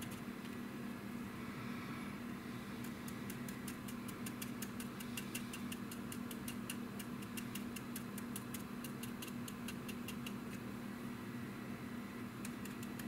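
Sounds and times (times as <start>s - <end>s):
steady low hum: 0.0s - 13.0s
brush ticking on plastic: 2.8s - 10.4s.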